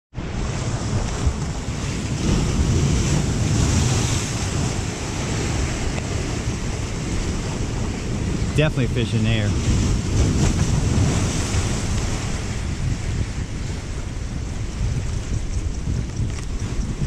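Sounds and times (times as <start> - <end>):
surf breaking over rocks: 0.2 - 17.0
wind buffeting microphone: 0.2 - 17.0.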